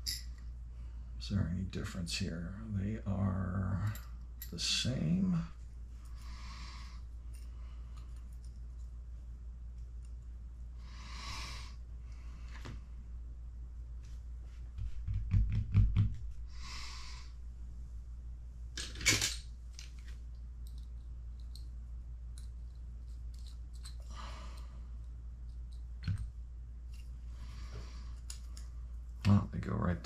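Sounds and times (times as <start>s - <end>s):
steady low hum: 0.0s - 30.0s
small metal parts clicking: 20.6s - 21.7s, 22.3s - 24.1s.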